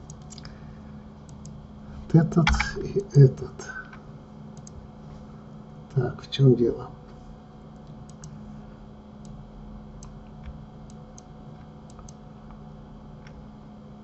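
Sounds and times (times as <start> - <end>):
computer mouse clicking: 0.0 - 0.5, 1.3 - 1.6, 4.6 - 4.8, 7.8 - 8.4, 9.2 - 9.4, 10.0 - 11.3, 11.9 - 12.6
low electrical hum: 0.0 - 14.0.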